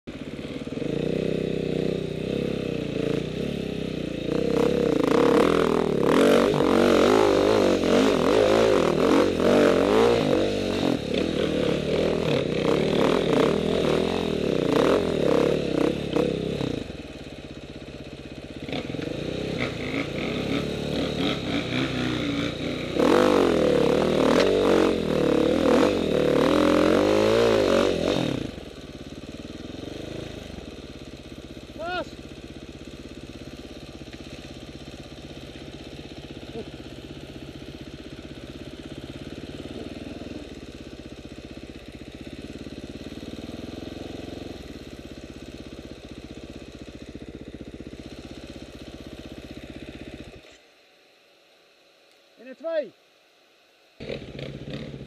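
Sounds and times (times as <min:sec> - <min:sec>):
dirt bike engine revving hard: 0:00.3 - 0:17.0, 0:18.6 - 0:28.7, 0:29.6 - 0:30.7, 0:54.0 - 0:55.0.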